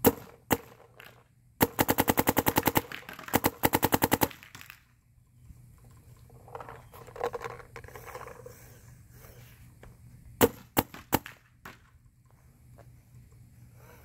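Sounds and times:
paintball marker shots: 0:00.0 - 0:04.8, 0:10.4 - 0:11.9.

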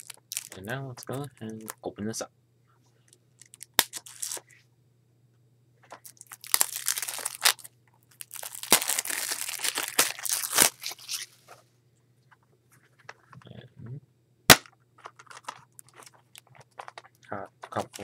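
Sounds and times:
plastic wrap crinkling: 0:00.0 - 0:01.8, 0:03.4 - 0:04.4, 0:05.9 - 0:11.4, 0:15.0 - 0:18.0.

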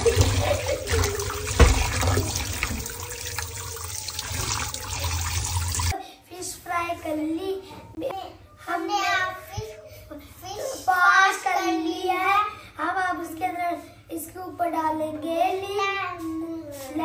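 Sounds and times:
tap water running into steel bowl: 0:00.0 - 0:05.9
child's voice: 0:05.9 - 0:17.0.

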